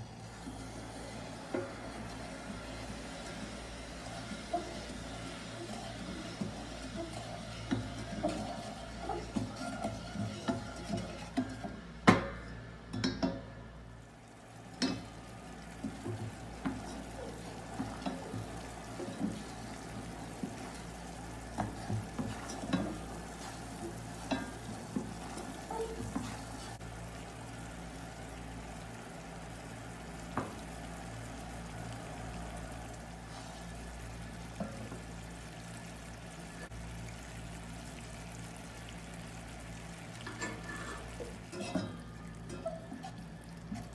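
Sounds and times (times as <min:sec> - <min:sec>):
syrup simmering and sizzling: 0:00.0 - 0:43.9
wooden spatula scraping saucepan: 0:01.5 - 0:11.8, 0:15.7 - 0:26.8.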